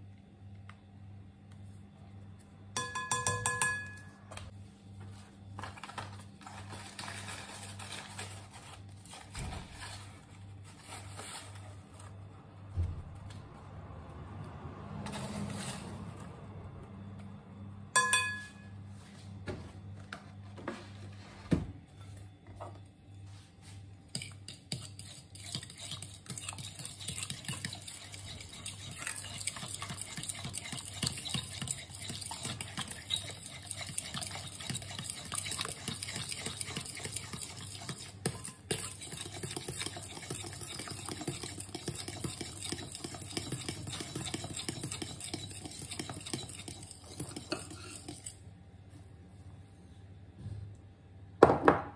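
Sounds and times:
utensil clinking bowl: 2.8 - 4.2, 18.0 - 18.7, 24.2 - 48.3
utensil stirring batter in glass bowl: 23.6 - 48.5.

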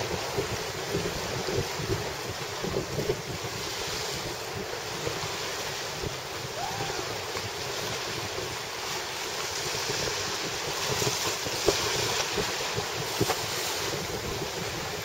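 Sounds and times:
sea waves on rocky shore: 0.0 - 15.0
wind buffeting microphone: 0.0 - 15.0.

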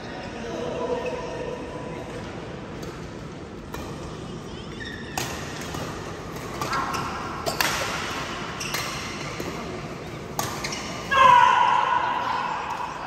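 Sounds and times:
rackets hitting shuttlecock: 5.1 - 11.1.

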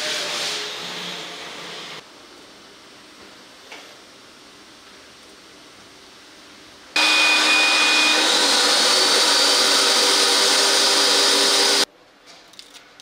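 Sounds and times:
industrial vacuum motor running: 7.0 - 11.9.

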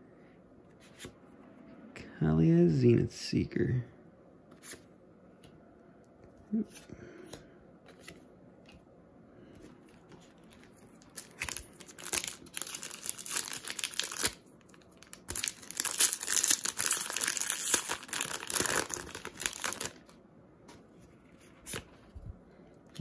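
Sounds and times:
foil wrapper crinkling and tearing: 10.4 - 20.1.

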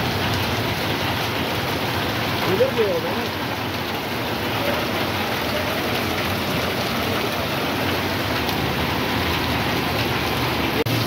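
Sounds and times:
heavy rain on a wet street: 0.0 - 11.0.

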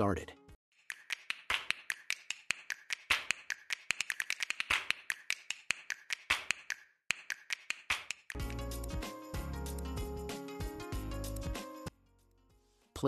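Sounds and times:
rapid sharp clicks: 0.8 - 8.4.

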